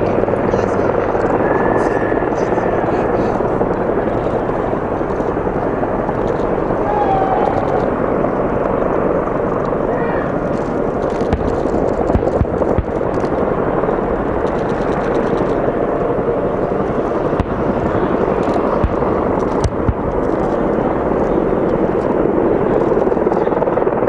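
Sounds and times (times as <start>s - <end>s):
distant helicopter: 0.0s - 24.0s
gunfire or blasts: 11.1s - 15.6s, 17.2s - 20.7s.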